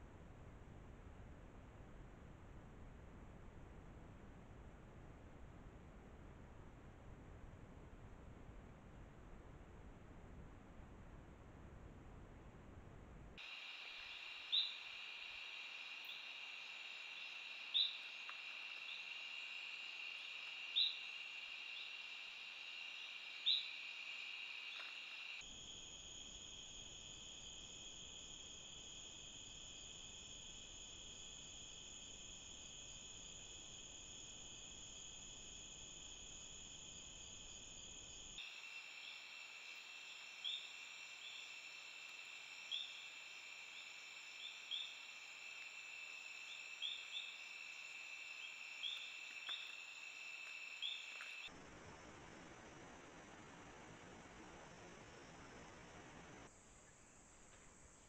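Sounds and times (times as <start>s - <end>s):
insects trilling: 13.4s - 58.0s.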